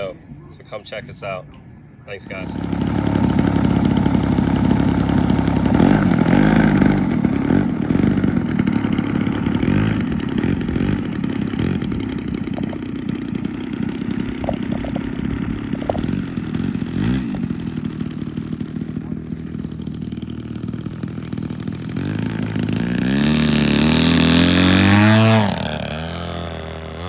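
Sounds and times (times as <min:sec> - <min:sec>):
model airplane engine at low throttle: 0:02.1 - 0:27.0.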